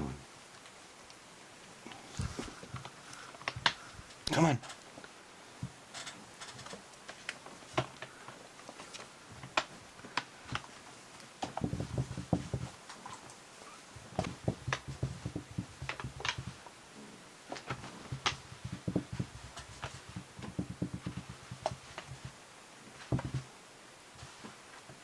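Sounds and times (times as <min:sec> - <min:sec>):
rustling and thudding: 0:02.0 - 0:16.8, 0:17.5 - 0:25.0
soft thumps: 0:14.1 - 0:16.6, 0:18.1 - 0:22.4.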